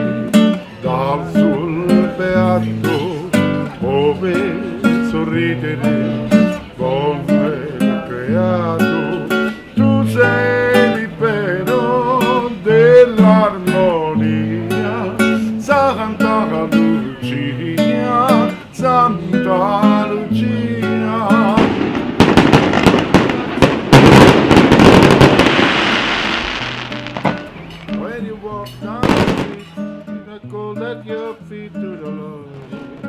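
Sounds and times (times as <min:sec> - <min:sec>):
acoustic guitar music: 0:00.0 - 0:33.0
firecrackers banging: 0:21.3 - 0:30.0.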